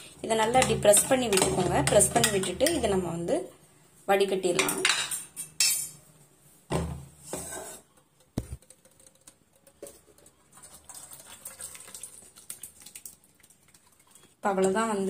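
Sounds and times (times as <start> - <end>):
metal pots clattering: 0.3 - 3.0.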